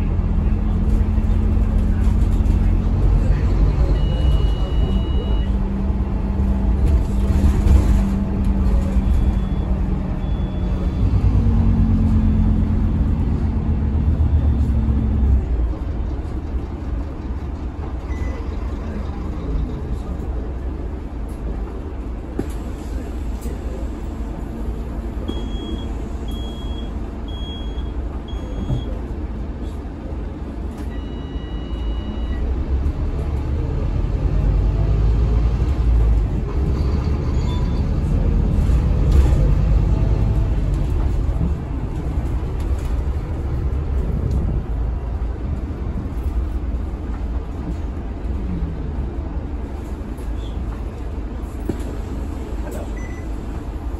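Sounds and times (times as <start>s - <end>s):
bus diesel engine running: 0.0s - 53.9s
short high beeps: 4.0s - 5.5s.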